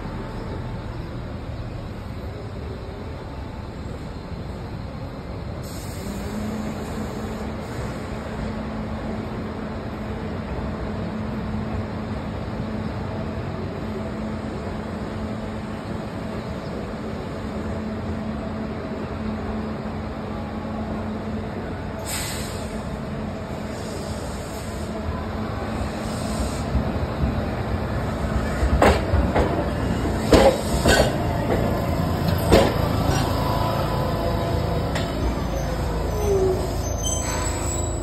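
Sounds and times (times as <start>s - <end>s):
city traffic and buses: 0.0s - 38.0s
air brake hiss: 5.6s - 8.2s, 22.0s - 22.9s, 23.6s - 25.0s, 25.8s - 26.8s.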